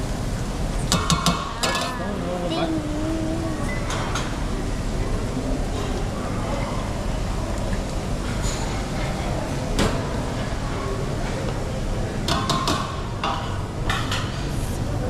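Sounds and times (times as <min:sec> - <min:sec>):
busy restaurant din: 0:00.0 - 0:15.0.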